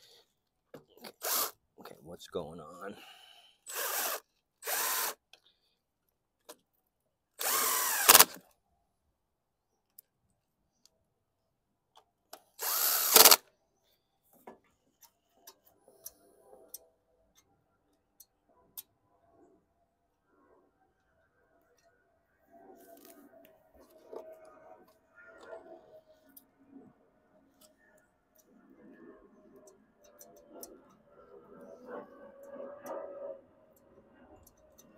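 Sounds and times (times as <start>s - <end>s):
impact driver driving screws: 1.0s - 1.5s, 3.7s - 5.2s, 7.4s - 8.4s, 12.6s - 13.4s.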